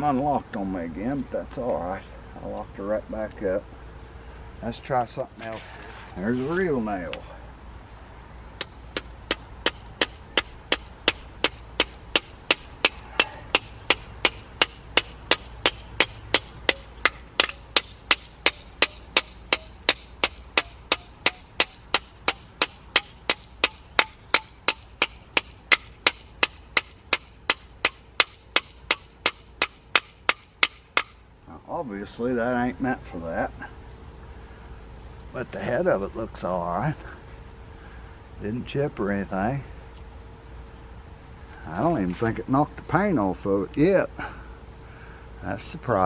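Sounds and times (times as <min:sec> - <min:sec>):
hammer striking steel nail: 0:08.6 - 0:31.2.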